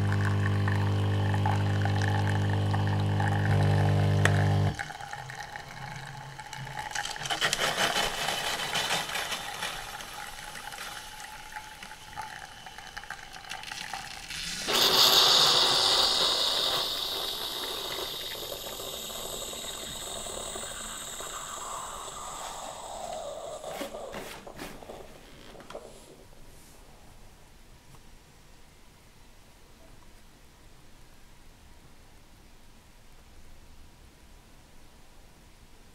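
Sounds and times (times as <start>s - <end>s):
drink trickling into glass: 0.0s - 3.6s, 4.3s - 24.6s
pump humming: 0.0s - 7.5s, 8.4s - 25.7s
loud hiss of air and steam: 14.7s - 24.2s.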